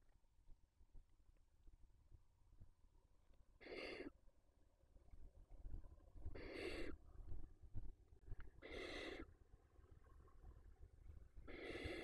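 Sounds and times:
owl chicks rasping begging calls: 3.6s - 4.1s, 6.4s - 7.0s, 8.6s - 9.3s, 11.5s - 12.0s.

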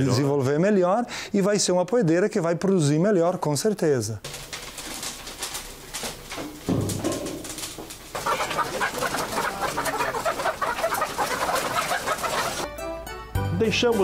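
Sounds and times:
hens clucking and calling: 8.1s - 12.7s.

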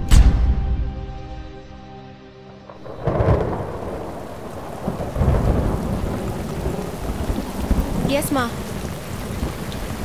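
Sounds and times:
music: 0.0s - 4.1s
rolling thunder: 2.7s - 10.0s
rain falling: 2.8s - 10.0s.

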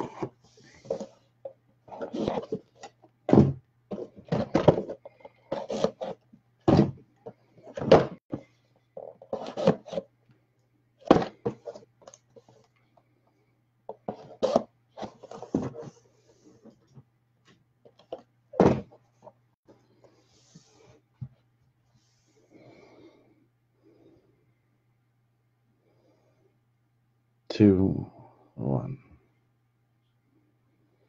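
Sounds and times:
cardboard boxes thunking on table: 3.3s - 7.0s, 11.0s - 11.8s, 18.6s - 19.0s.

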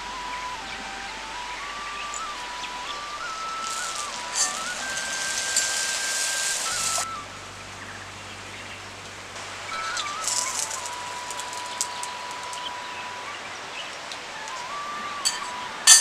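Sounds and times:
slow background music: 0.0s - 16.0s
hot oil sizzling: 3.2s - 7.0s, 9.4s - 12.6s
metal tongs clicking: 15.3s - 16.0s.

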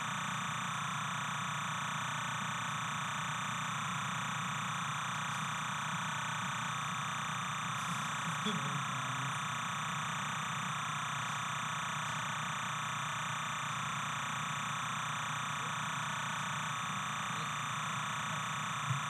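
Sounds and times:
steady hiss and hum: 3.6s - 11.4s.

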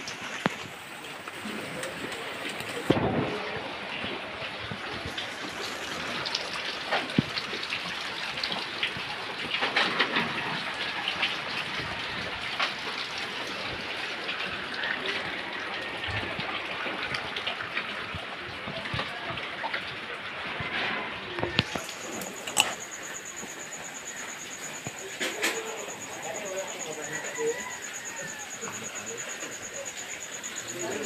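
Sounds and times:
water drips and taps: 0.0s - 3.2s, 4.0s - 20.4s, 21.3s - 31.0s
steady rain: 0.0s - 31.0s.

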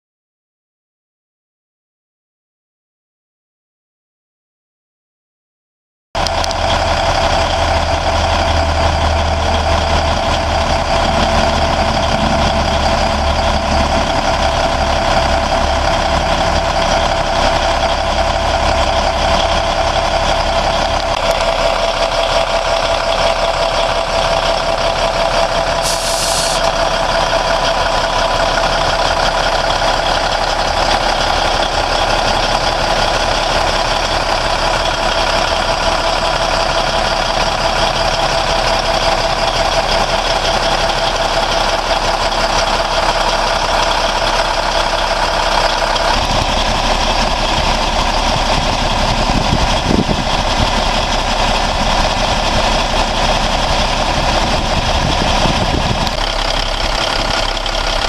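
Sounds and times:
diesel truck engine idling: 6.2s - 58.0s
high hiss: 25.8s - 26.7s.

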